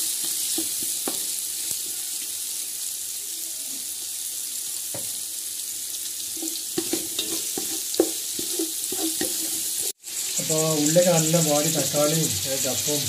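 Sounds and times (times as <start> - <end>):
onions sizzling in hot fat: 0.0 - 13.0
spatula scraping metal pot: 6.4 - 10.4.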